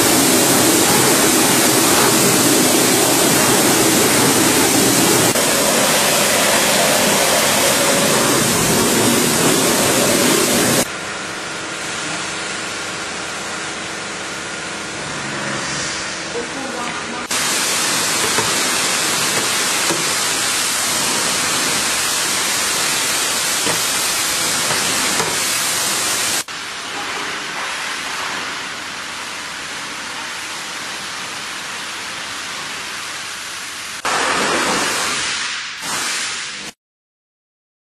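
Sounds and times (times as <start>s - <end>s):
water spraying on plastic pan: 17.3s - 26.5s.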